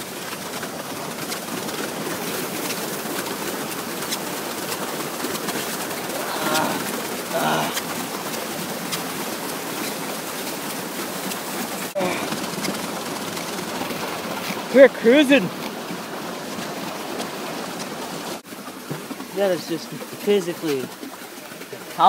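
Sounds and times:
paddlewheel splashing water: 0.0s - 22.0s
person yelling: 6.1s - 7.8s.

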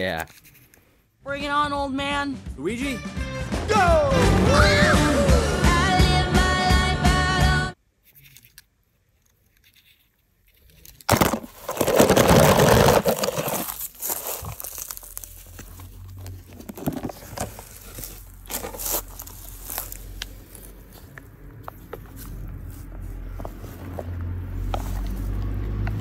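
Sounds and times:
plastic container rustling: 11.0s - 20.8s
sand crunching and crinkling: 12.1s - 16.4s, 17.5s - 25.9s.

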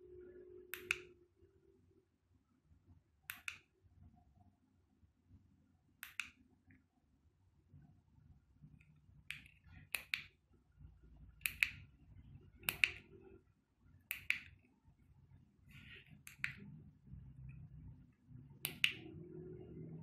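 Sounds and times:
low steady hum: 0.0s - 20.0s
sharp clicks: 12.6s - 13.1s, 14.1s - 14.6s, 18.6s - 19.0s.

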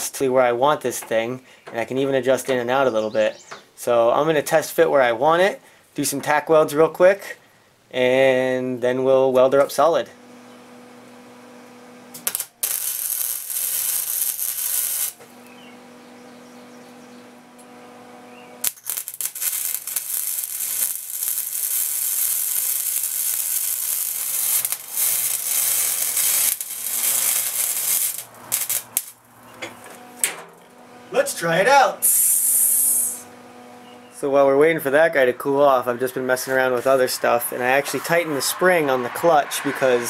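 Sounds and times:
welder humming: 9.9s - 40.0s
arc welding crackling: 11.0s - 16.3s, 17.2s - 33.4s.

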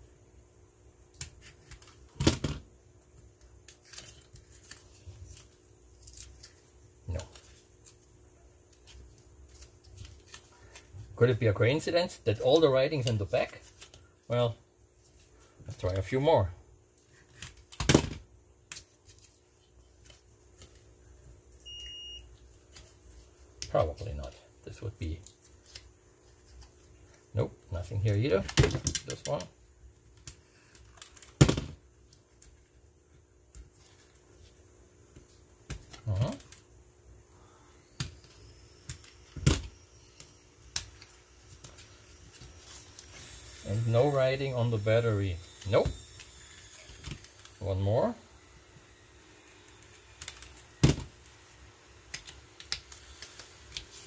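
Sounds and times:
high electronic beep: 21.7s - 22.3s.

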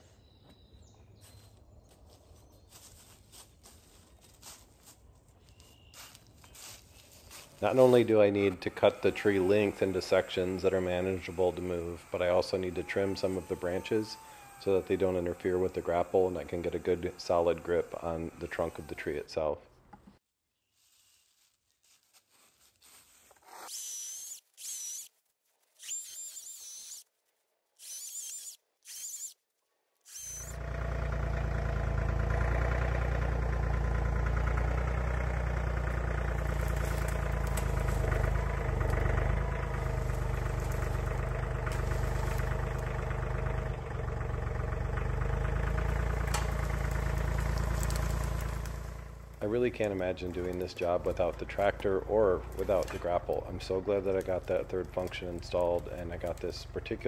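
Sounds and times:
chainsaw cutting branches: 6.0s - 19.4s, 23.4s - 25.1s, 25.8s - 27.0s, 27.8s - 29.4s, 30.1s - 31.6s, 35.5s - 43.6s, 45.1s - 57.0s
tractor diesel engine under load: 7.5s - 19.6s, 30.1s - 57.0s.

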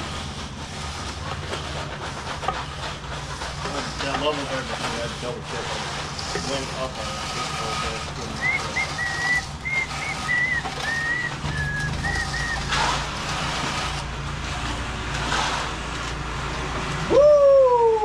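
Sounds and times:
loud rising and sliding tone: 7.4s - 18.0s.

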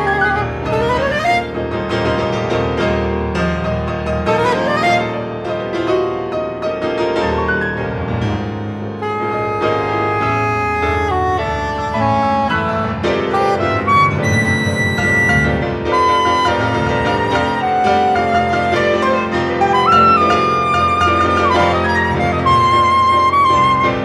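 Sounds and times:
soprano saxophone: 0.0s - 1.6s, 4.3s - 5.3s, 9.0s - 24.0s
pianos playing chords: 0.0s - 24.0s.

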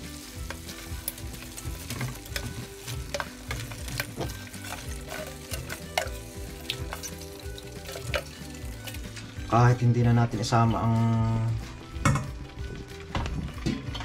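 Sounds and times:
sauce sizzling in a pan: 0.0s - 9.6s.

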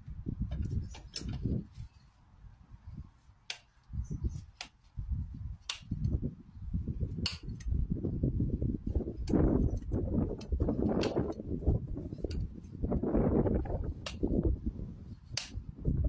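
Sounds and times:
sharp clicks: 5.7s - 6.2s.

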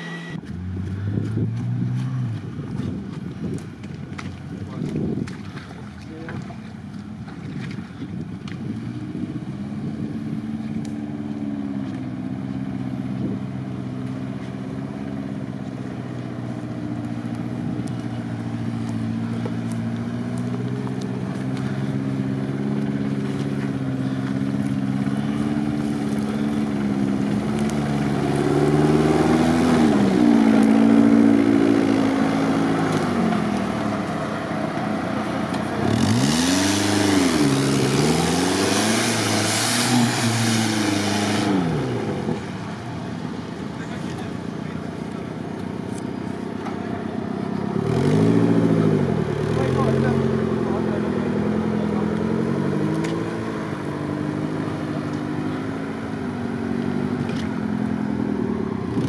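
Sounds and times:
off-road engine revving: 0.0s - 59.0s.

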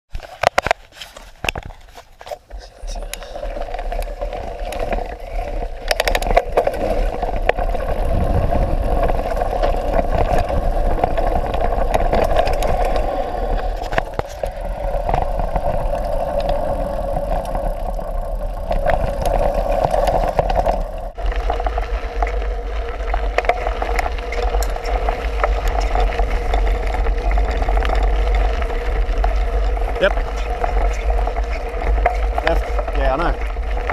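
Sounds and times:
bike rattling and knocking: 0.2s - 33.9s
tyres rushing on dirt: 2.8s - 33.9s
wind rushing: 7.9s - 16.2s.

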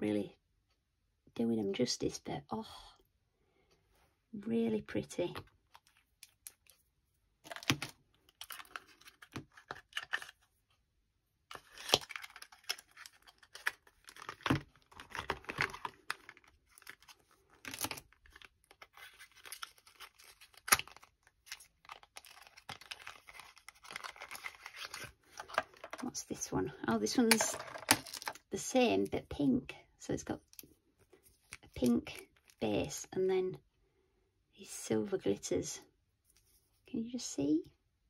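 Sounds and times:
cardboard packaging rustling and tearing: 7.5s - 10.5s, 11.5s - 26.1s, 27.3s - 28.4s.

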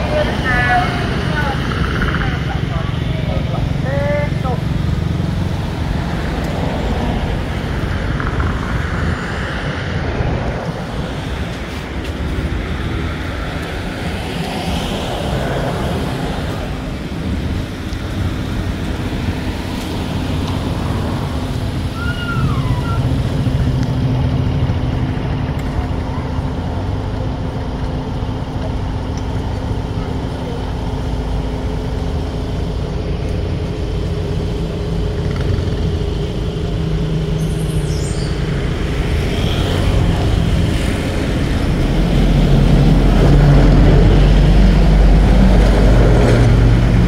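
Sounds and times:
low background rumble: 0.0s - 47.0s
high falling squeak: 22.0s - 23.1s.

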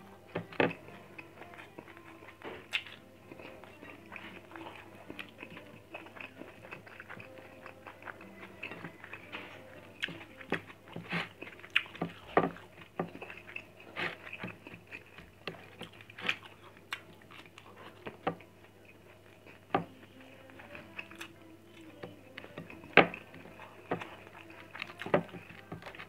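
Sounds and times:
person chewing food: 0.0s - 26.0s.

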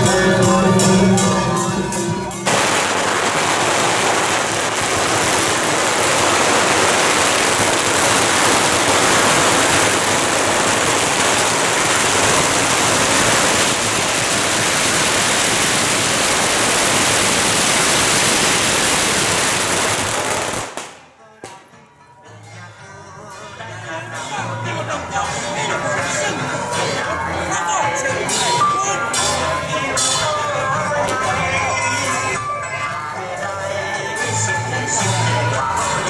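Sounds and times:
music: 0.0s - 4.8s, 20.4s - 36.0s
firecrackers crackling: 2.4s - 21.7s.

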